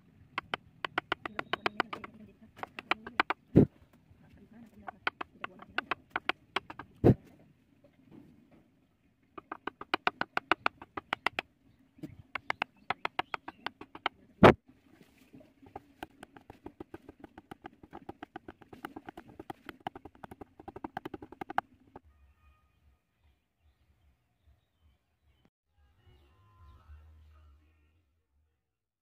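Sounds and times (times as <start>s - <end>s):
metal punch tapping wood: 0.4s - 3.4s, 4.9s - 7.0s, 9.4s - 11.4s, 12.4s - 14.1s, 15.8s - 21.6s.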